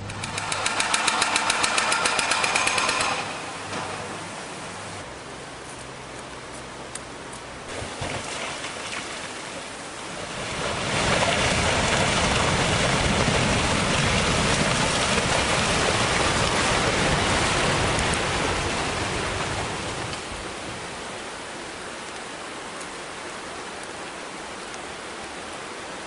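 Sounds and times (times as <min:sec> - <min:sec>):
falling rock and debris rushing: 0:07.7 - 0:20.2.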